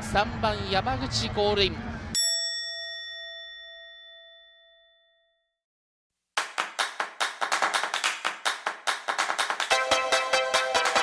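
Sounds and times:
bell-like ding: 2.2 - 5.5
fast sharp percussive hits: 6.4 - 11.0.

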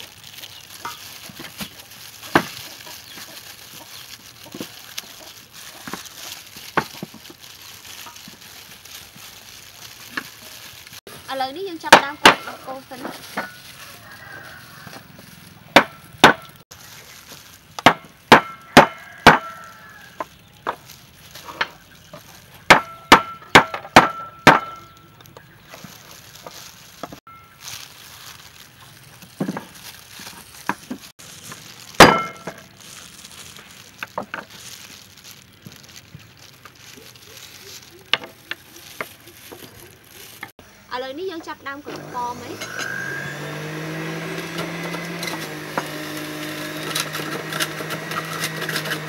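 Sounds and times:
cleaver striking tin cans: 32.0 - 32.6.

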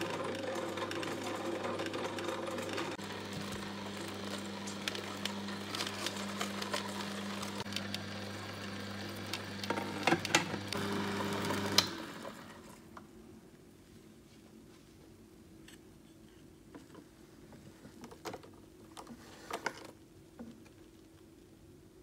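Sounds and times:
juicer motor humming: 0.0 - 12.8.

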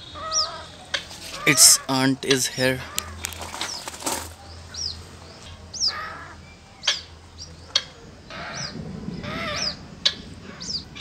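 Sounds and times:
birds peeping: 0.0 - 11.0
wings flapping: 2.9 - 4.4.

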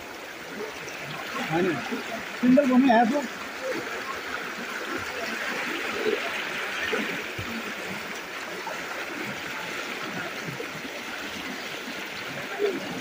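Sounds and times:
floodwater rushing: 0.0 - 13.0
people wading through water: 0.0 - 13.0.

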